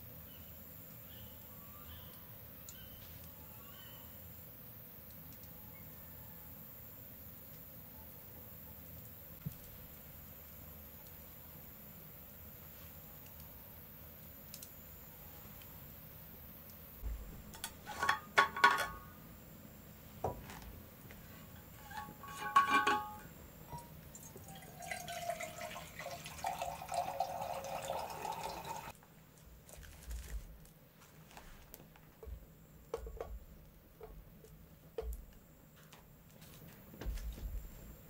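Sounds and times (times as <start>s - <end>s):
cookware clinking: 17.5s - 19.1s, 21.8s - 23.9s
liquid pouring into vessel: 24.2s - 28.9s.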